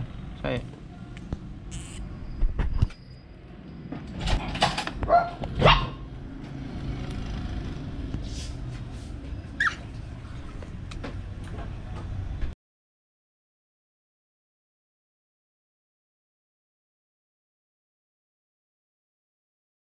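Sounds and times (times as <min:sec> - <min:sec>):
marmoset squeak: 0:09.6 - 0:09.8.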